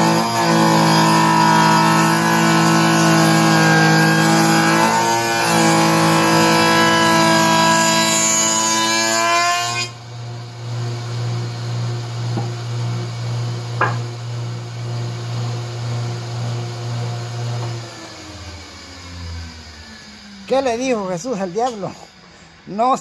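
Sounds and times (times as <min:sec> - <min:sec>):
electric planer cutting wood: 0:00.0 - 0:22.0
wooden knocks: 0:13.8 - 0:14.1.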